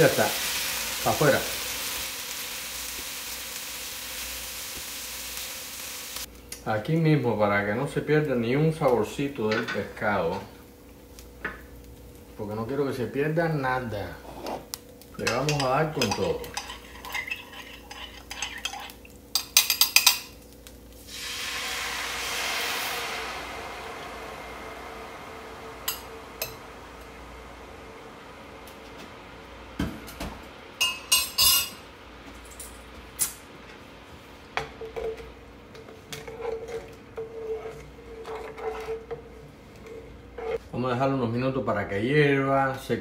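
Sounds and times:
sauce hissing in hot skillet: 0.0s - 6.3s, 13.5s - 19.3s, 20.3s - 32.0s
faint simmering hiss: 0.0s - 43.0s
wooden spoon scraping pan: 14.2s - 14.7s, 15.3s - 19.0s, 34.8s - 40.6s.

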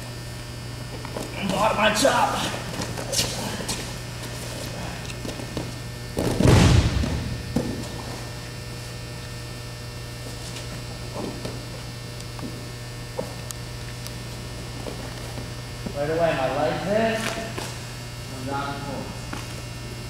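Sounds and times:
electrical hum: 0.0s - 20.0s
knocks of movement on mat: 2.7s - 8.4s
bodies thudding on wrestling mat: 5.5s - 8.4s.

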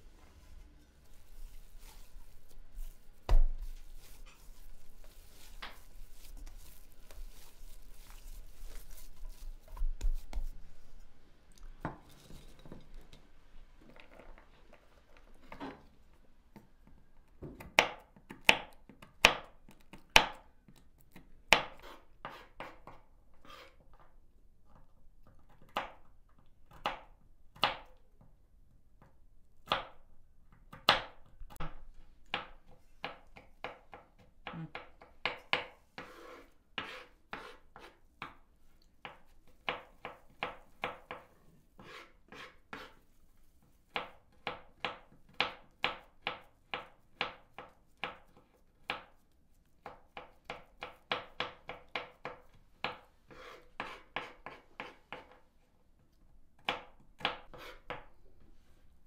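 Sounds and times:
knife chopping on wooden board: 32.3s - 38.3s.

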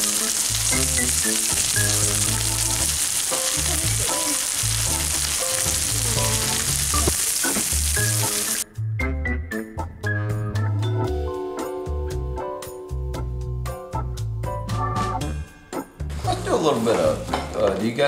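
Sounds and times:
meat patties sizzling on a griddle: 0.0s - 8.6s
background music: 0.0s - 18.0s.

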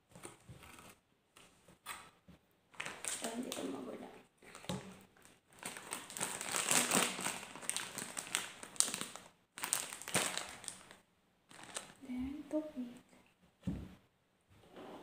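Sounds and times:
foil snack bag crinkling: 2.8s - 3.8s, 4.5s - 12.0s.

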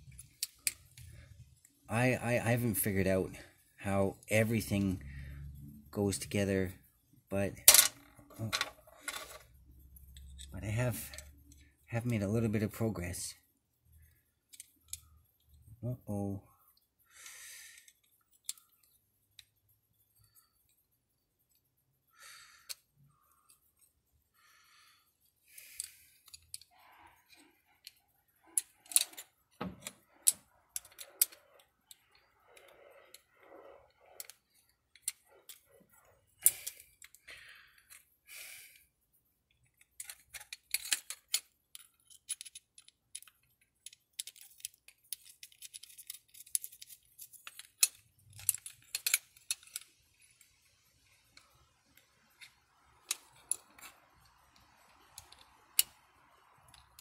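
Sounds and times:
metal tools clinking: 39.6s - 50.6s.

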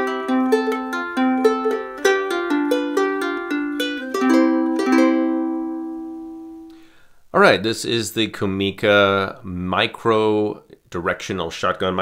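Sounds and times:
ukulele plucked notes and chords: 0.0s - 6.9s.

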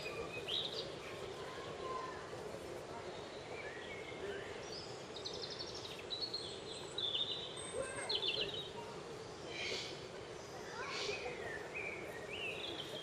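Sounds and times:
outdoor background hiss: 0.0s - 13.0s
songbirds chirping: 0.0s - 13.0s.

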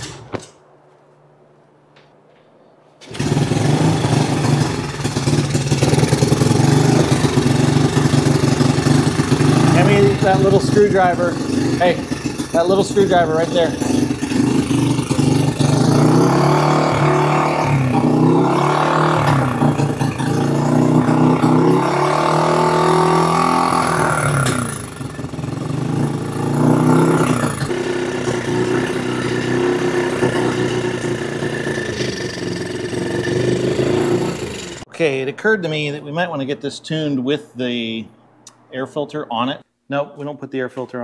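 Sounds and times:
small engine running unevenly: 3.0s - 34.8s.

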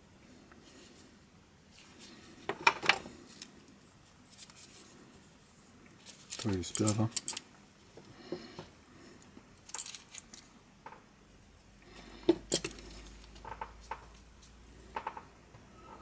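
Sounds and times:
plastic parts clicking and clinking: 6.0s - 7.4s, 9.6s - 10.5s.

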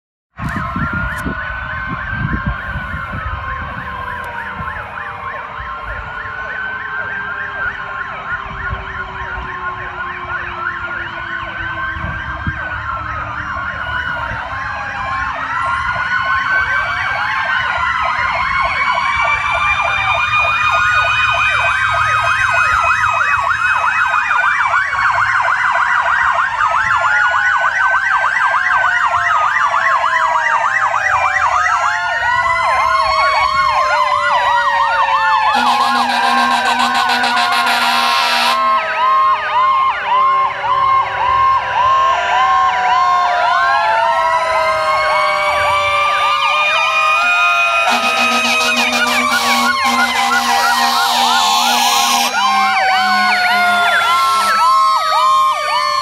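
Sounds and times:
low siren tone falling: 0.4s - 17.6s, 31.5s - 56.0s
wailing sirens: 0.4s - 56.0s
warbling siren yelps: 0.4s - 56.0s.

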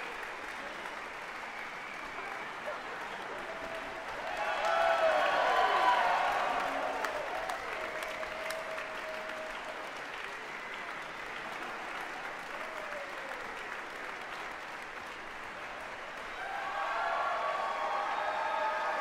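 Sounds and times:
audience applauding: 0.0s - 19.0s.

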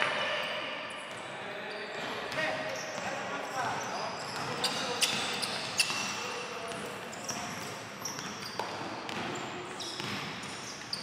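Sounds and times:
sneaker squeaks: 0.0s - 11.0s
basketball bouncing on hardwood: 10.0s - 10.3s.

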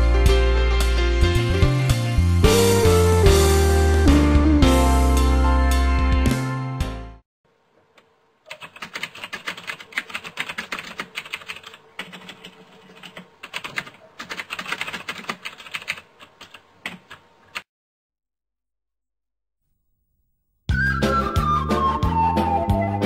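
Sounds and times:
background music: 0.0s - 7.2s, 20.7s - 23.0s
keyboard typing: 8.0s - 17.7s.

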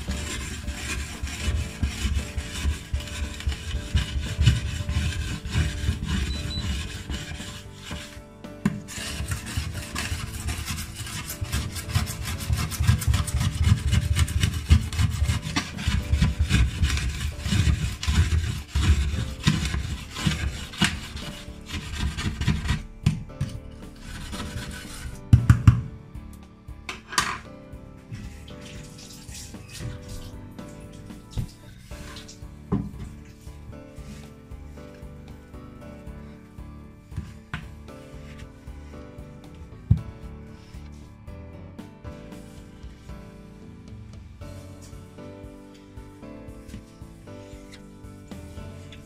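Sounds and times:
metal scraper on glass hob: 0.0s - 25.9s.

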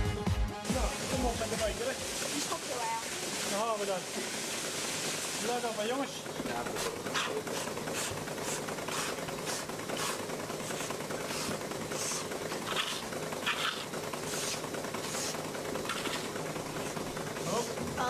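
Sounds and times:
low machine hum: 0.0s - 18.0s
milking machine air hisses: 6.7s - 13.0s, 13.6s - 15.5s.

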